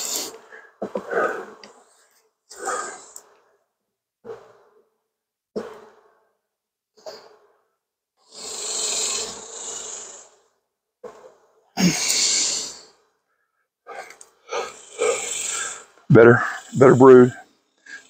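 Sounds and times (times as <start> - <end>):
man breathing heavily: 0.0 - 3.7, 11.8 - 18.0.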